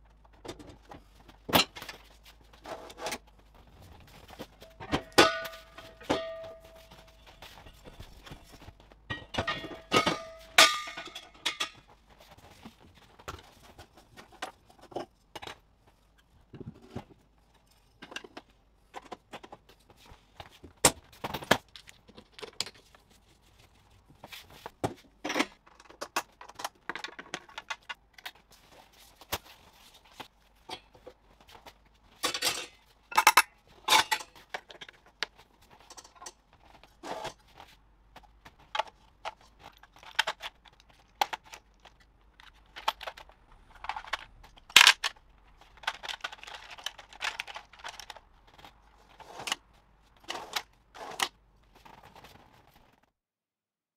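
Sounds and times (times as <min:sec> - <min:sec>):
connectors clicking and clinking: 0:30.6 - 0:52.1.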